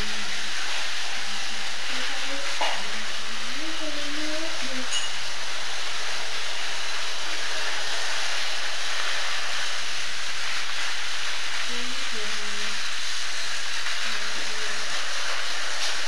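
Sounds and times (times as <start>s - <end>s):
toy trains whirring on track: 0.0s - 16.0s.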